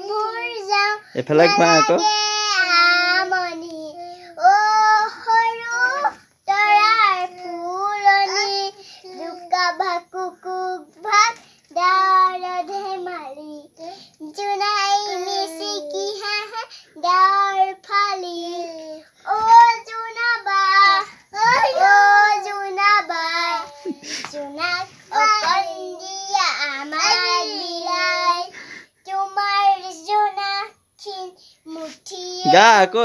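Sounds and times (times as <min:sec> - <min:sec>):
child singing unaccompanied: 0:00.0 - 0:33.0.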